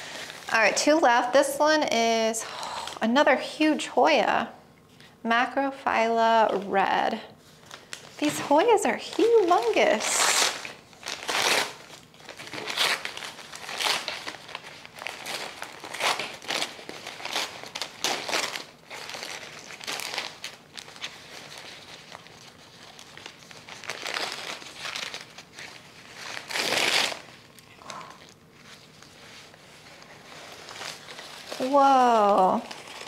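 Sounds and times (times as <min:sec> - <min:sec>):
paper wrapping crinkling: 0:07.4 - 0:33.0.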